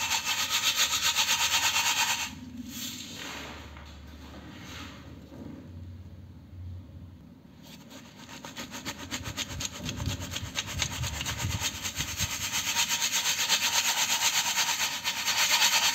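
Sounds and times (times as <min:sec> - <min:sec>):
grit rasping in metal sieve: 0:00.0 - 0:03.3, 0:07.6 - 0:15.9.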